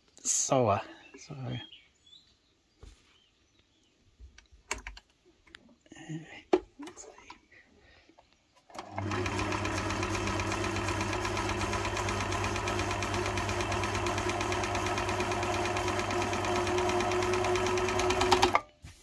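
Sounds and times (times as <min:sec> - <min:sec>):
sewing machine motor hum: 0:08.7 - 0:18.6
sewing machine needle patter: 0:08.8 - 0:18.6.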